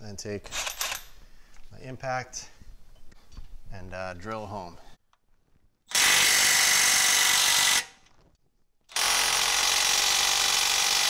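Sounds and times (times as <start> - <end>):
impact wrench running: 5.9 - 8.0, 8.9 - 11.0.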